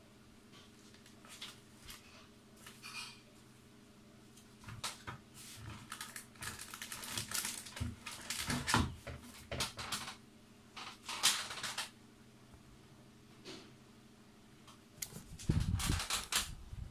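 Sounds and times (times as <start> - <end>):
faint steady hum: 0.0 - 16.9
paper and cardboard rustling: 0.7 - 2.9, 4.6 - 10.0, 15.1 - 16.5.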